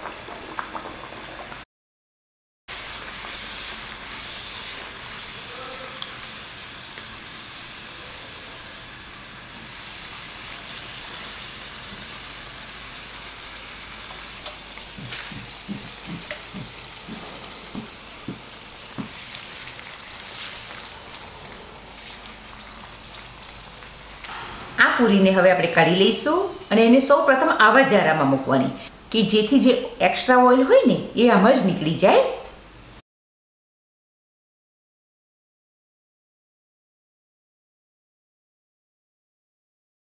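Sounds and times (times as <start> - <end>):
oil sizzling: 0.0 - 1.6, 2.7 - 29.9.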